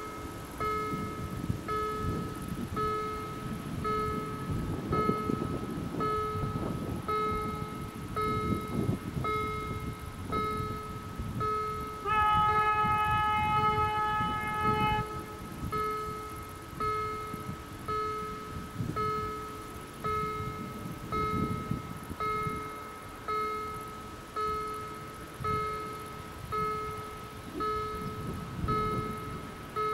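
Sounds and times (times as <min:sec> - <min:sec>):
level crossing warning bell beeping: 0:00.0 - 0:29.9
train horn blast: 0:12.0 - 0:15.7.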